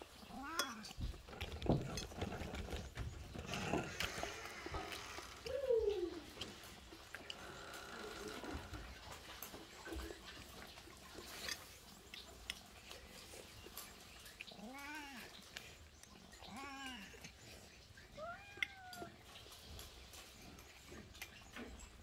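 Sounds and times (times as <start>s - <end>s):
cat meowing: 18.2s - 19.2s.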